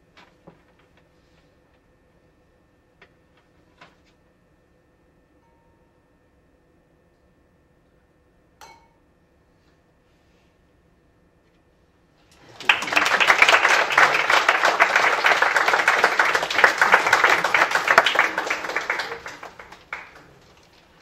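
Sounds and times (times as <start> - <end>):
small audience applauding: 12.4 - 21.0.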